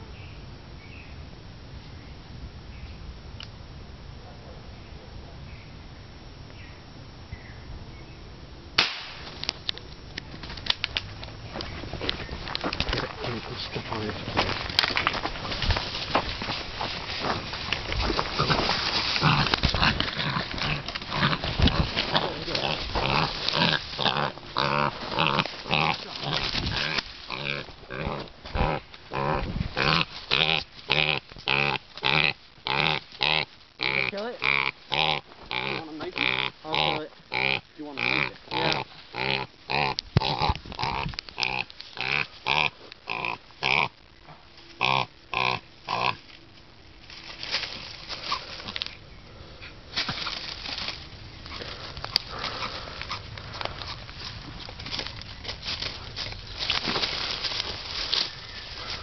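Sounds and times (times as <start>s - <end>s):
faint rustling: 10.2s - 33.8s, 46.1s - 59.0s
wild pig calling: 17.3s - 44.0s, 44.8s - 46.3s, 51.4s - 54.0s.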